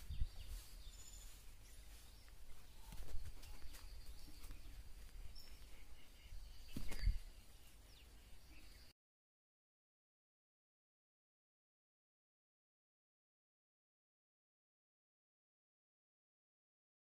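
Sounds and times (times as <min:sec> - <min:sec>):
bird chirps: 0:00.0 - 0:08.9.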